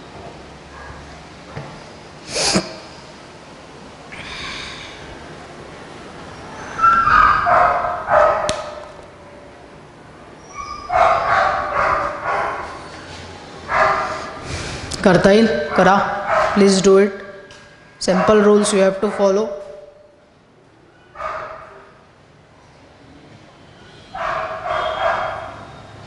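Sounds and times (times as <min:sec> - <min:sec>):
dog barking: 0:06.9 - 0:08.9, 0:10.9 - 0:12.8, 0:13.7 - 0:14.4, 0:15.6 - 0:17.4, 0:18.1 - 0:19.9, 0:21.2 - 0:21.9, 0:24.1 - 0:25.7.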